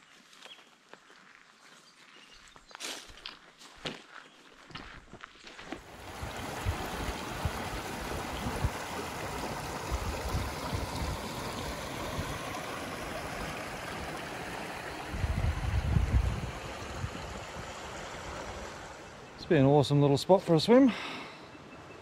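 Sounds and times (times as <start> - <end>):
creek water rushing over boulders: 5.8 - 19.4
low rumbling: 15.0 - 19.4.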